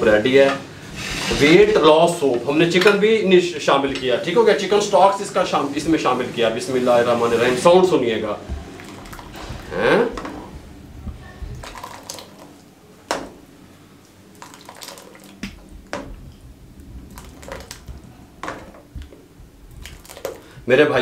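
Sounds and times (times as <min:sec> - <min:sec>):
soup splashing: 0:08.4 - 0:10.7, 0:11.5 - 0:20.7
liquid pouring into bowl: 0:08.5 - 0:10.4, 0:11.1 - 0:13.2, 0:14.0 - 0:20.6.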